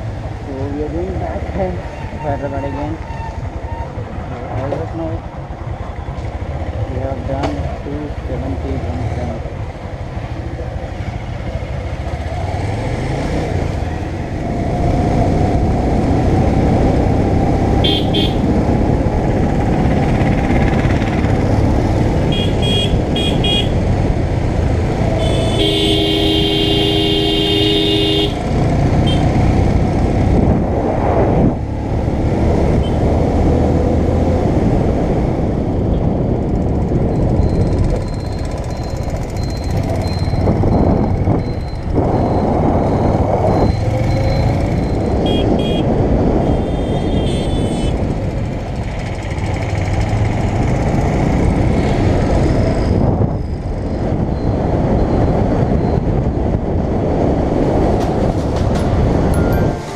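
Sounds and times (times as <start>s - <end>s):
motorcycle engine: 10.2s - 30.4s, 36.2s - 54.5s
wind noise: 13.0s - 59.9s
horn toots: 17.8s - 18.4s, 22.3s - 23.8s, 25.2s - 28.4s, 45.2s - 48.0s
long horn honk: 25.2s - 28.4s.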